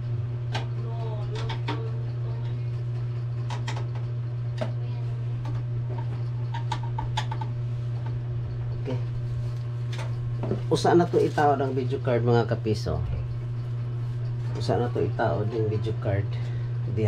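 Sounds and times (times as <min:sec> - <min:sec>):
steady low hum: 0:00.0 - 0:17.0
computer parts clicking and knocking: 0:03.4 - 0:04.7, 0:05.4 - 0:07.5.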